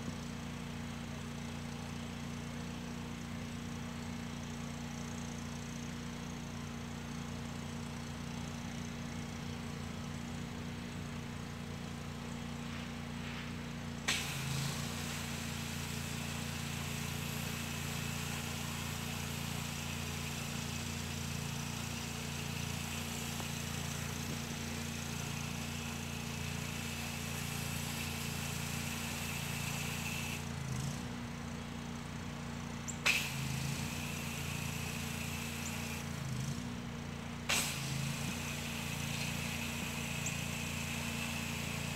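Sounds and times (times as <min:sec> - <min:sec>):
pressure washer humming: 0:06.1 - 0:41.9
high-pressure spray hissing: 0:12.7 - 0:30.5, 0:33.0 - 0:36.2, 0:37.5 - 0:41.9.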